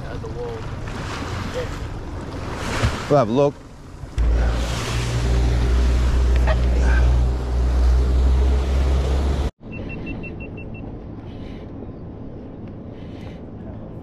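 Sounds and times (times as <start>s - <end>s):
water wash: 0.0s - 9.5s
wind and water rushing: 0.0s - 9.5s
outboard motor running: 3.7s - 9.5s.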